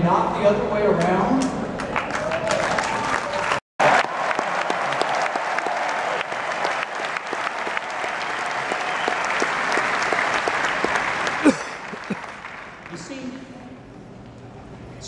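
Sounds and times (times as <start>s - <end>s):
crowd applauding: 1.8s - 13.4s.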